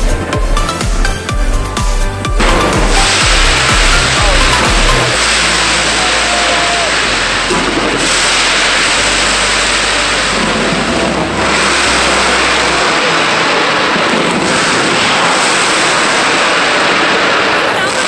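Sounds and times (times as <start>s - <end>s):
fireworks crackling and hissing: 0.0s - 18.0s.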